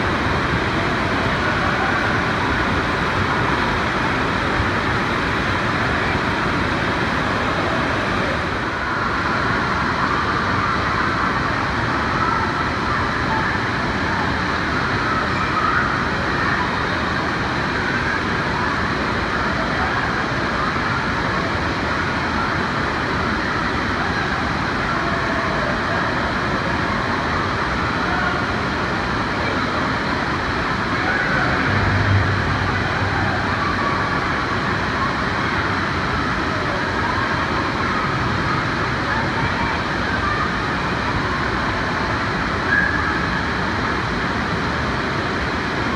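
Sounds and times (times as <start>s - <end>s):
distant voices: 0.0s - 44.2s
water noise: 0.0s - 45.9s
low hum: 30.7s - 34.9s.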